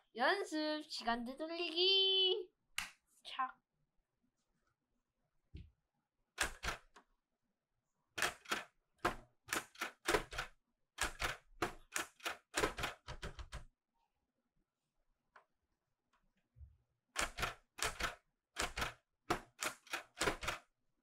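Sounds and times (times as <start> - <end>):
typewriter keys clacking: 9.5 - 13.6, 17.2 - 20.6.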